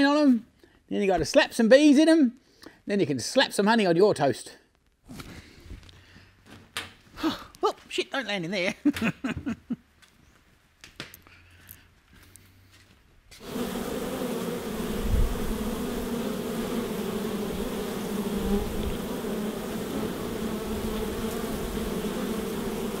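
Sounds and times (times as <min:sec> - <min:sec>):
honey bees buzzing: 0:13.4 - 0:23.0.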